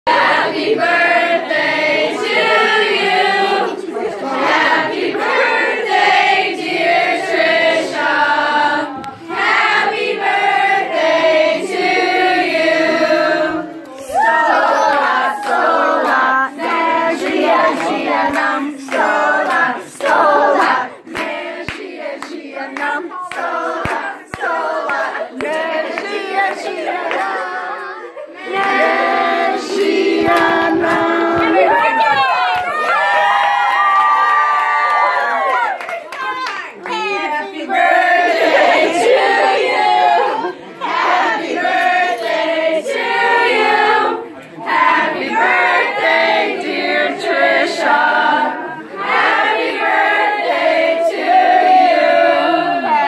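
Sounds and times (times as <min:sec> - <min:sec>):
group of people singing: 0:00.0 - 0:33.1, 0:36.3 - 0:53.0
people chattering: 0:02.0 - 0:05.9, 0:11.4 - 0:33.1, 0:35.1 - 0:53.0
people laughing: 0:02.2 - 0:04.4, 0:24.9 - 0:29.2, 0:37.9 - 0:41.4.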